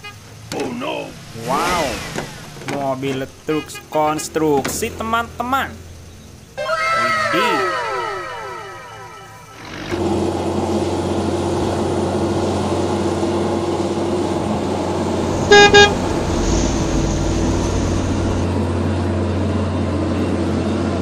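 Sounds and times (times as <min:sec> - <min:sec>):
diesel truck engine running: 0:08.3 - 0:21.0
truck horn toots: 0:15.5 - 0:16.0.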